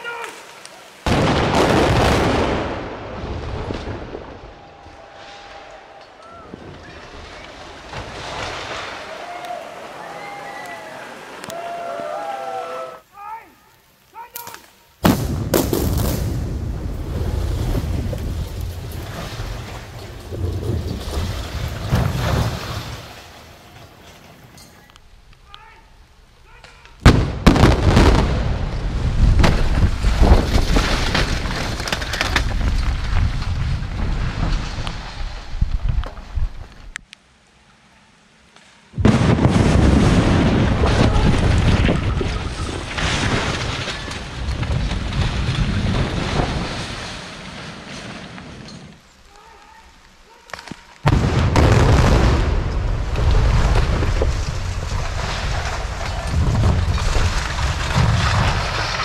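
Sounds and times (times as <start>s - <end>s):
loud explosion blast: 1.1s - 5.5s, 15.0s - 22.7s, 27.0s - 31.2s, 39.0s - 46.8s, 51.0s - 59.0s
bridge collapsing with rumble and crashes: 1.1s - 9.6s, 15.0s - 24.6s, 27.0s - 36.9s, 39.0s - 49.0s, 51.0s - 59.0s
explosive bang: 15.0s - 16.9s, 27.0s - 31.3s, 51.1s - 54.5s
sharp cracks: 38.5s - 59.0s.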